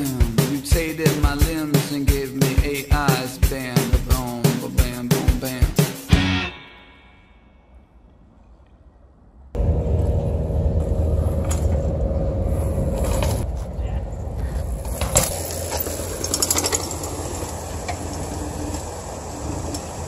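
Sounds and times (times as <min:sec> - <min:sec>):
bicycle rolling over rock: 0:12.5 - 0:13.5, 0:14.4 - 0:20.0.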